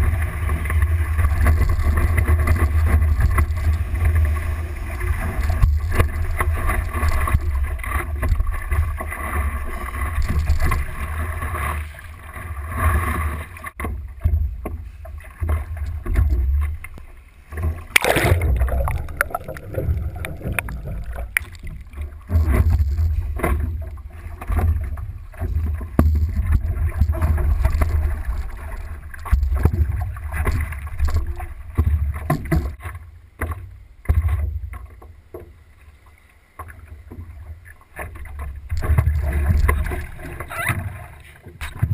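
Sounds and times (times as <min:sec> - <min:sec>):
water rushing and splashing: 0:00.0 - 0:32.8, 0:37.2 - 0:41.9
loud splash: 0:17.9 - 0:22.0.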